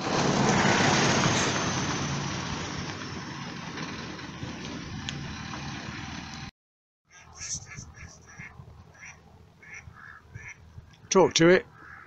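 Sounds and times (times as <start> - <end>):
road vehicle passing: 0.0 - 6.5.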